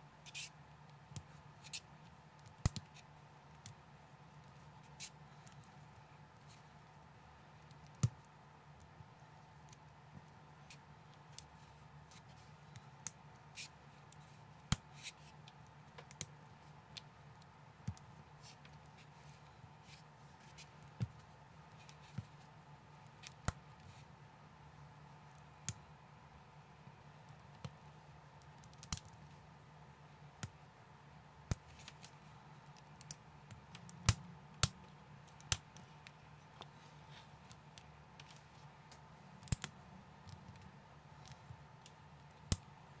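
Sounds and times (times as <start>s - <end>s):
faint steady hum: 0.0s - 43.0s.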